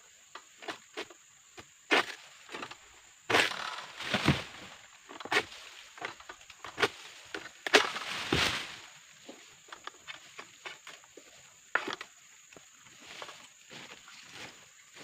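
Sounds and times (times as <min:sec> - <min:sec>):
sickle cracking through palm frond: 0:03.3 - 0:08.9
frond crashing through leaves: 0:04.0 - 0:04.7, 0:07.8 - 0:08.8
frond landing with a thump: 0:04.0 - 0:04.7, 0:07.7 - 0:08.8.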